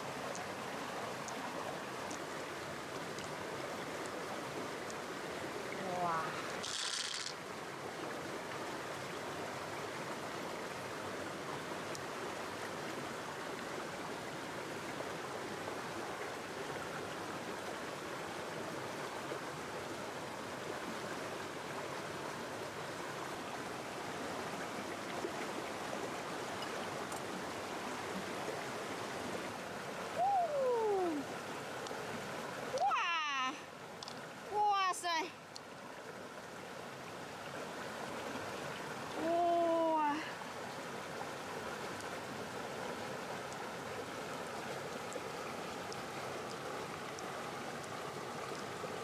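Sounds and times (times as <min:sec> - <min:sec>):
stream water flowing: 0:00.0 - 0:49.0
person exclaiming: 0:30.2 - 0:31.3, 0:32.8 - 0:33.6, 0:39.2 - 0:40.3.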